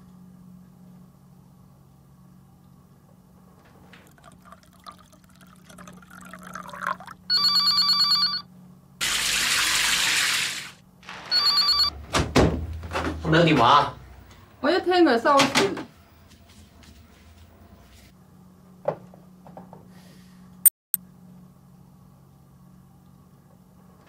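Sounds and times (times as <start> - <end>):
telephone ringing: 7.3 - 8.4, 11.2 - 12.0.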